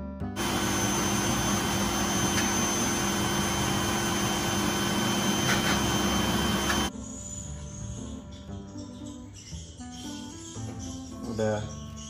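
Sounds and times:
grooming blower running: 0.4 - 6.9.

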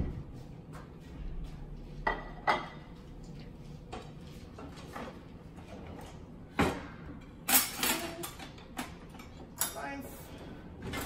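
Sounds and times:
kitchenware clattering: 2.1 - 2.9, 6.6 - 10.0.

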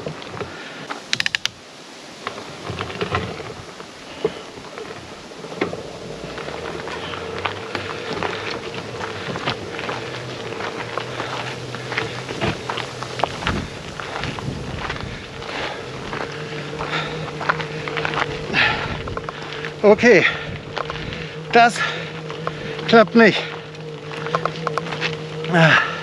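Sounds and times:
electric bike motor whine: 2.2 - 26.0
tyres crunching on gravel: 2.2 - 26.0.

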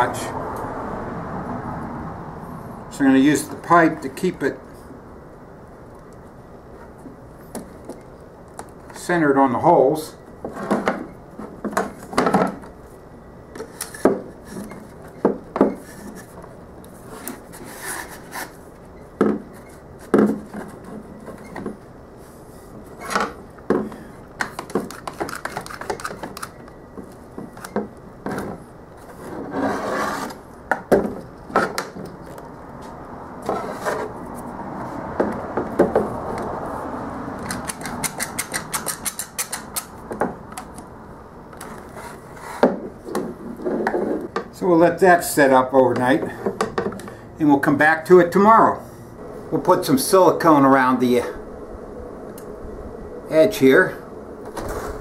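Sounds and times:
scraping and rubbing: 17.0 - 18.7, 28.3 - 30.5, 33.4 - 35.1, 41.6 - 44.4, 54.5 - 55.0
ratcheting clicks of clamps: 37.4 - 39.9.

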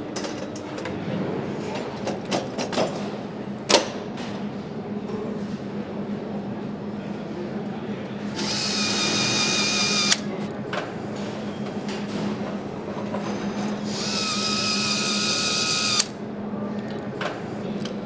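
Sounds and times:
power screwdriver whining: 8.4 - 10.2, 13.9 - 16.1
screwdriver cutting off with click: 8.4 - 10.2, 13.9 - 16.1.

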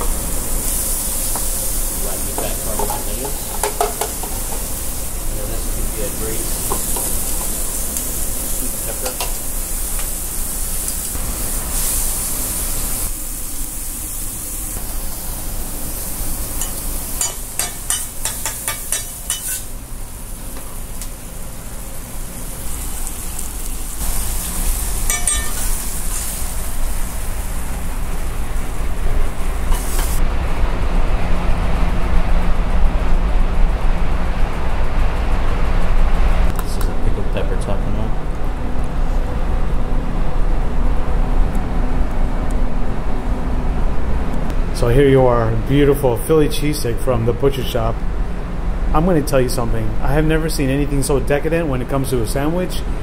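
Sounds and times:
meat and peppers sizzling on griddle: 0.0 - 30.2
metal spatula scraping on steel: 16.6 - 19.7, 25.1 - 26.4.

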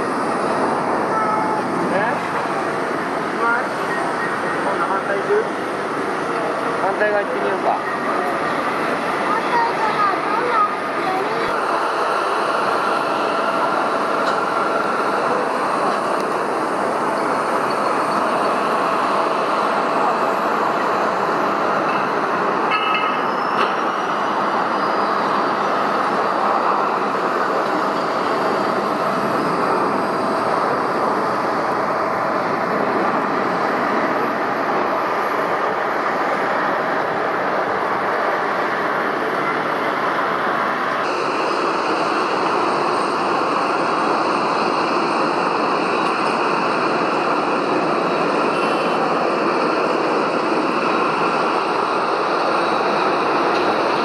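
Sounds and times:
jet engines roaring: 0.0 - 54.0.

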